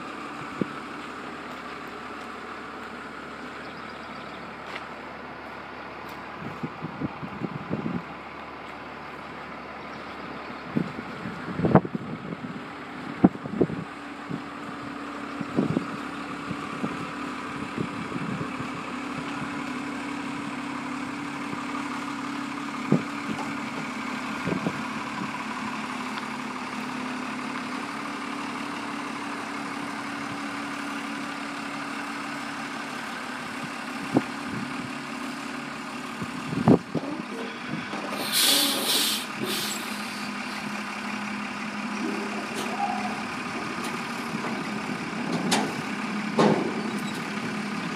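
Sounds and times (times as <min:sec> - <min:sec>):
diesel truck engine idling: 0:00.0 - 0:47.9
air brake hiss: 0:37.5 - 0:40.6.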